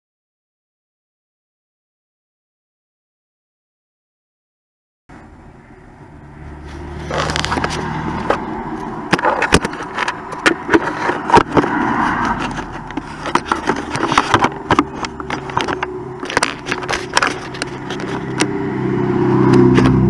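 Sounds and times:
knocks and scrapes on wooden hull: 9.1s - 18.5s.

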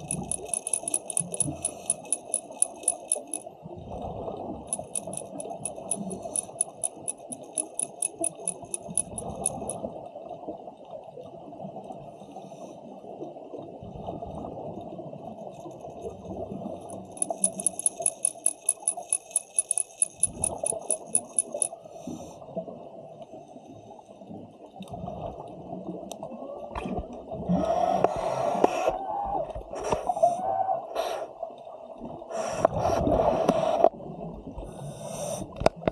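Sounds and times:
dolphins clicking underwater: 0.0s - 3.5s, 4.7s - 9.8s, 16.8s - 21.8s.

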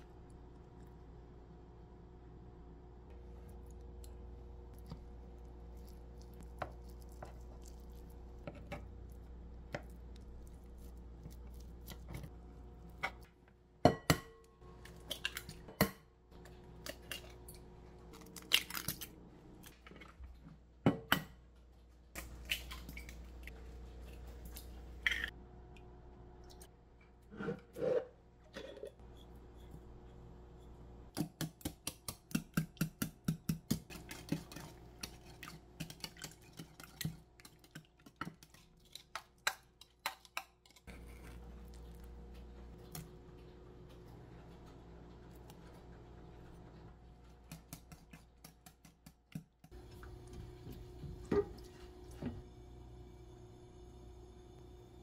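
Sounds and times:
faint steady hum: 49.7s - 55.0s.

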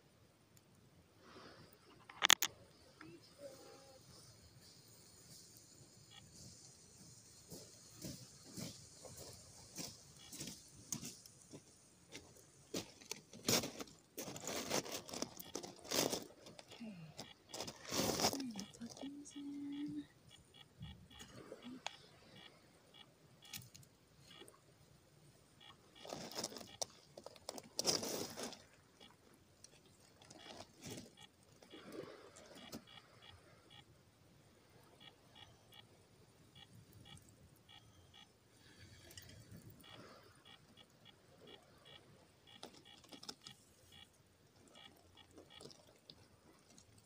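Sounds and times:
rustling scraping of kindling: 6.2s - 18.9s
sticks crackling while handled: 8.0s - 19.3s
wood clicking and knocking on stones: 9.8s - 18.9s.

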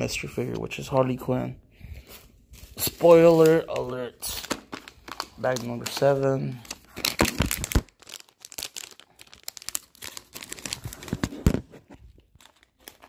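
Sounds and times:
plastic wrapper tearing and crinkling: 2.6s - 13.0s.

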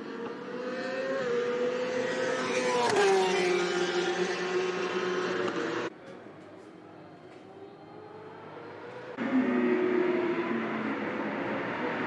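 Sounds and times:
racing motorcycle engine: 0.0s - 5.9s.

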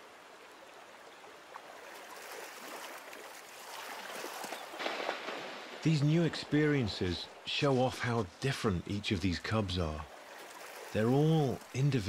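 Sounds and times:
river water flowing: 0.0s - 12.0s.

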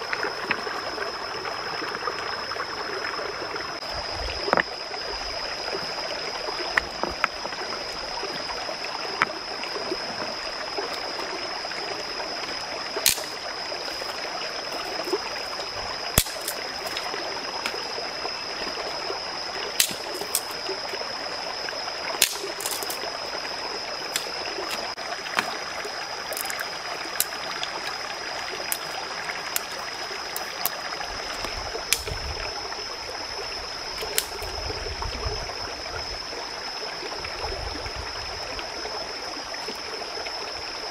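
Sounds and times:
stream rushing over rocks: 0.0s - 35.8s
stones and sticks clicking on rocks: 13.0s - 15.0s, 16.2s - 17.8s, 19.8s - 20.6s, 22.2s - 23.0s, 26.3s - 26.6s, 27.2s - 27.4s, 28.7s - 32.2s.

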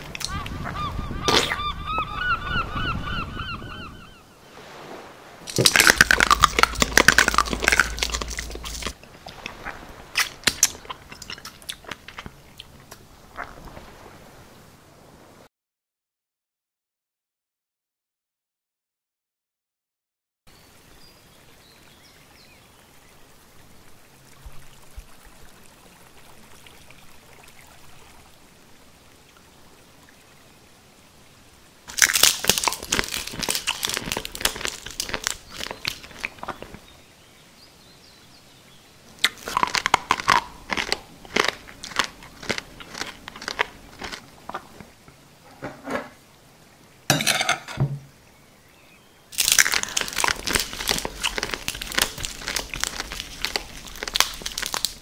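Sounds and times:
moss and soil crunching: 5.4s - 12.2s, 31.9s - 36.9s, 39.2s - 44.9s, 49.3s - 55.0s.

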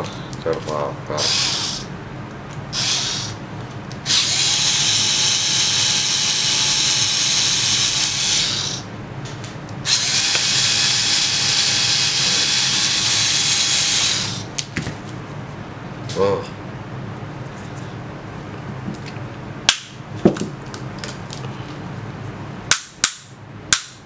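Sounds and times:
electric screwdriver motor whine: 1.2s - 1.9s, 2.8s - 3.4s, 4.1s - 8.8s, 9.9s - 14.4s.

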